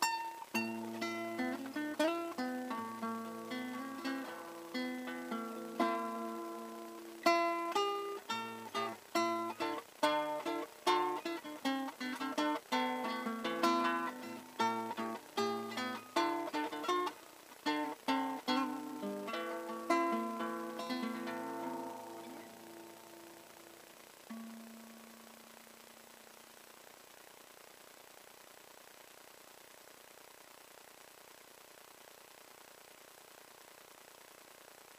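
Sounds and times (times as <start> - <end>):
fingerstyle classical guitar: 0.0 - 26.0.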